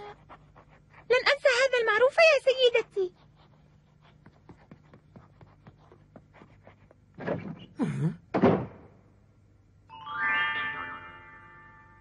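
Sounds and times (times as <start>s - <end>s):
door bang: 8.3s - 8.9s.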